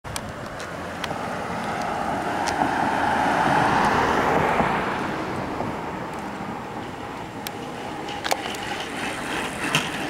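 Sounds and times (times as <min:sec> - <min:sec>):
car driving past: 0:00.7 - 0:10.0.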